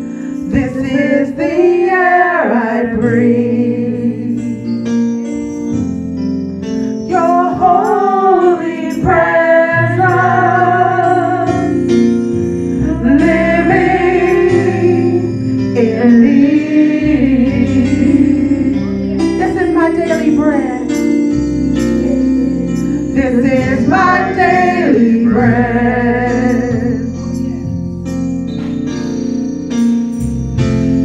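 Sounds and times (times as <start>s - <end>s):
held instrumental chords: 0.0s - 31.0s
women singing worship song: 0.4s - 4.6s, 7.1s - 12.0s, 12.8s - 18.8s, 22.6s - 27.2s.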